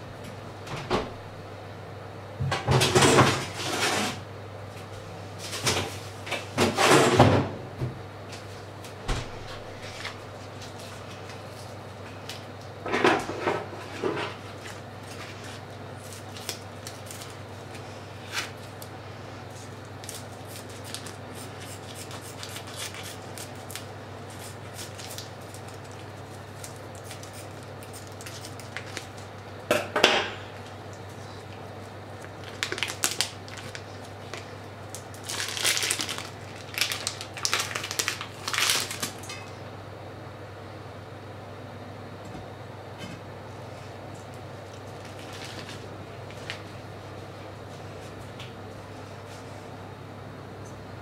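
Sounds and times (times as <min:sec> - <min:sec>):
steady low hum: 0:00.0 - 0:51.0
plastic packaging crinkling: 0:14.5 - 0:18.9, 0:19.6 - 0:29.6, 0:31.0 - 0:39.2, 0:44.6 - 0:46.6.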